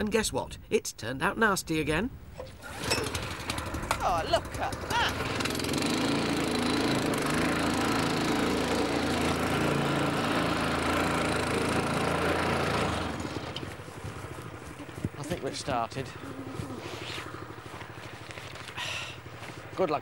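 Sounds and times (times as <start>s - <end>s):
small petrol engine running: 2.6s - 20.0s.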